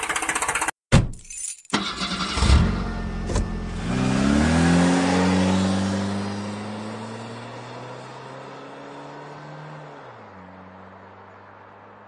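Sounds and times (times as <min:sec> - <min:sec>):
engine revving: 0:01.8 - 0:10.1.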